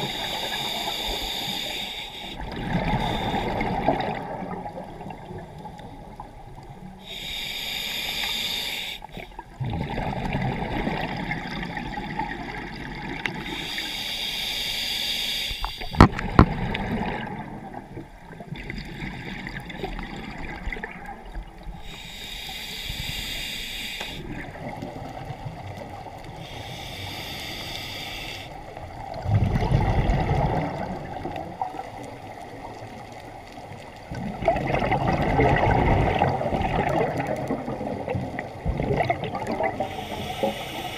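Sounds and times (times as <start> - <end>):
low gurgling: 28.8 - 32.9, 34.0 - 40.1
hissing bubble bursts: 34.1 - 40.9.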